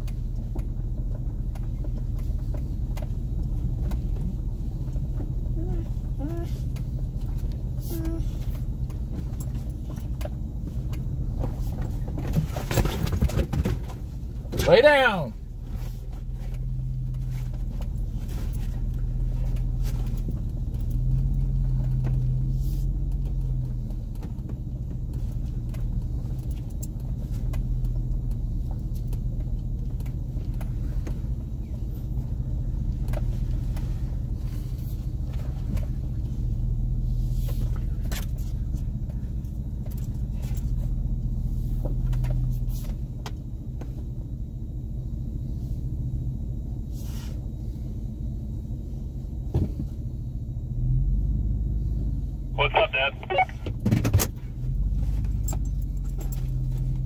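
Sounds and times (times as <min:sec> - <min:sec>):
truck engine humming: 0:00.0 - 0:12.7, 0:13.9 - 0:46.8, 0:47.5 - 0:57.0
knocks and rattles over bumps: 0:00.0 - 0:14.7.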